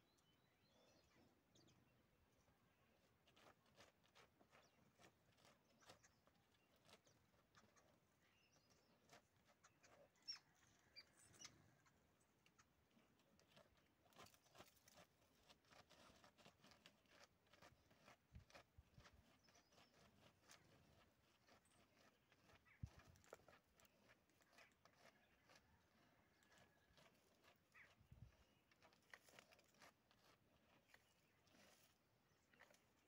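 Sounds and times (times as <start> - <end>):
dog paws scratching dry leaves: 14.1 - 23.1.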